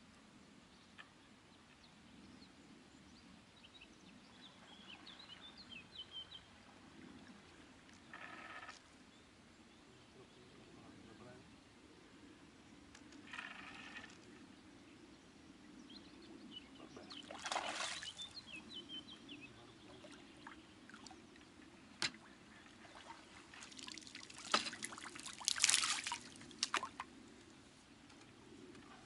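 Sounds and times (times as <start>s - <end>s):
fish splashing in water: 17.3s - 18.2s, 22.8s - 27.0s.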